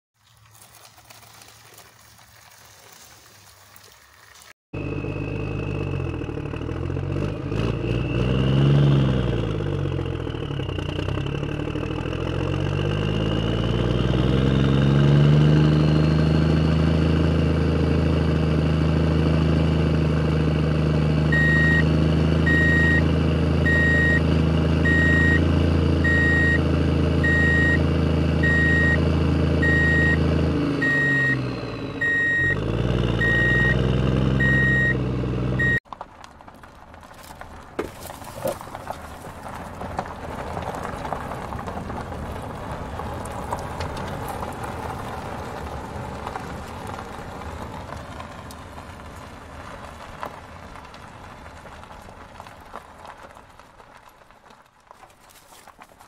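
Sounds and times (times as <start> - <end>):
heavy vehicle engine revving: 4.8 - 35.8
reversing alarm beeping: 21.2 - 35.8.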